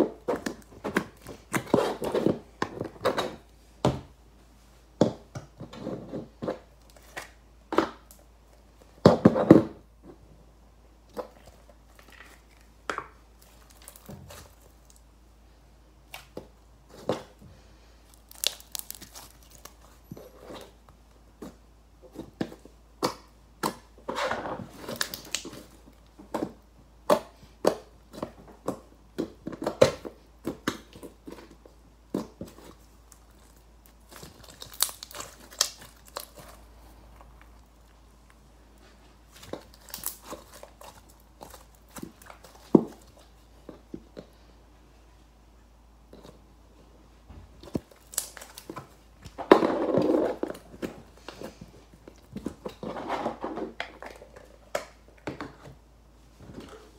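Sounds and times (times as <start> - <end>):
slime crackling when stretched: 13.4 - 15.0, 18.1 - 20.0, 33.1 - 36.7, 39.4 - 43.1, 47.8 - 48.7
slime clicking and popping: 18.1 - 19.8, 34.0 - 36.6.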